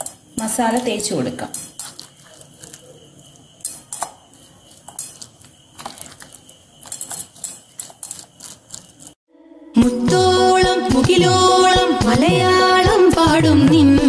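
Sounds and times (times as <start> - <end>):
fingers and fish scraping a plate: 3.7 - 9.2.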